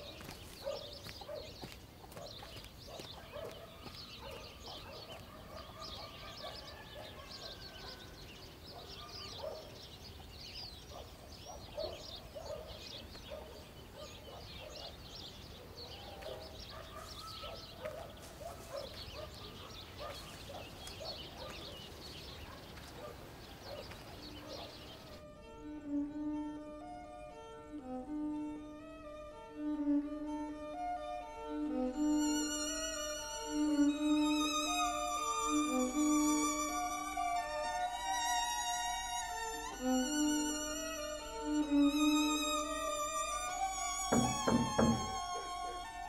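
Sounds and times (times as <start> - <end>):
domestic fowl calling: 0.0 - 9.6, 15.9 - 25.2, 32.0 - 46.0
small birds chirping: 0.0 - 25.3, 31.7 - 46.0.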